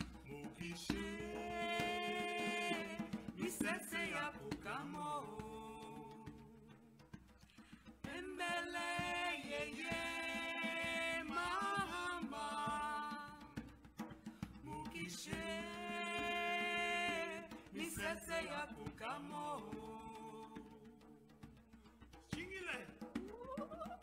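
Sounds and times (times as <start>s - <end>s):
woman singing a chant: 0.8s - 6.4s, 8.1s - 13.6s, 14.7s - 20.7s.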